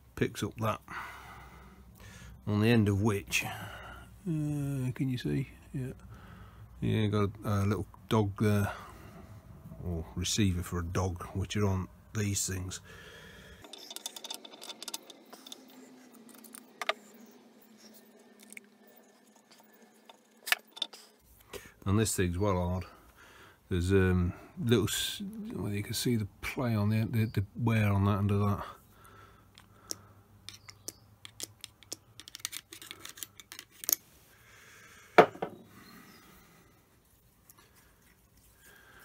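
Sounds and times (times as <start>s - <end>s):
metal parts clicking and scraping: 13.6s - 17.1s, 19.2s - 21.2s, 30.5s - 34.1s.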